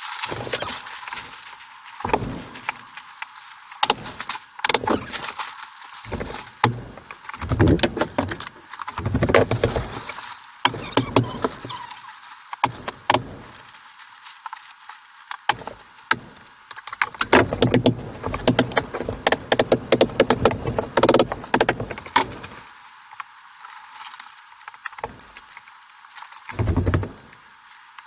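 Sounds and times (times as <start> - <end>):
plastic sheeting crinkling: 0.0 - 16.7.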